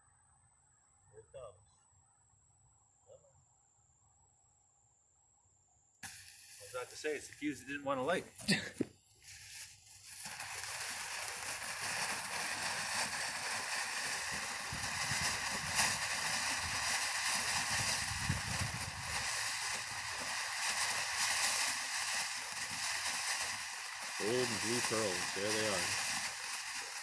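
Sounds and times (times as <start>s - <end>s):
firework crackles and pops: 6.0s - 27.0s
firework fountain hissing: 6.0s - 27.0s.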